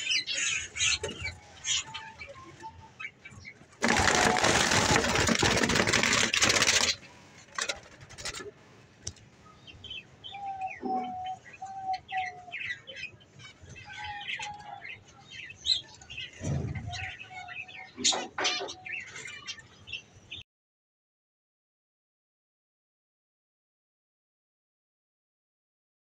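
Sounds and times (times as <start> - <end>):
dove flapping wings in cage: 3.8 - 8.5.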